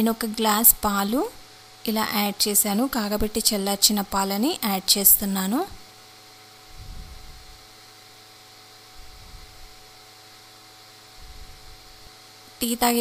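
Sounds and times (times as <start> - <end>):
electrical hum: 0.0 - 13.0
soft low rumbles: 6.7 - 7.6.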